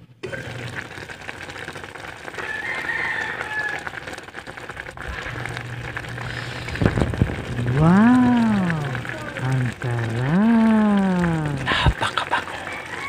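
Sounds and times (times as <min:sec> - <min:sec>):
pot boiling and bubbling: 0:00.0 - 0:13.0
rooster crowing: 0:02.4 - 0:04.2, 0:12.4 - 0:13.0.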